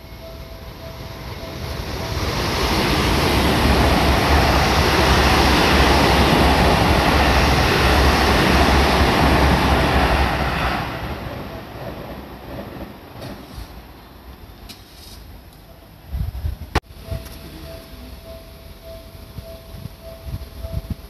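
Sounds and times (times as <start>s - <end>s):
crossing bell ringing: 0.0s - 11.9s, 16.9s - 21.0s
train wheels rumbling on rails: 0.0s - 14.8s, 16.0s - 21.0s.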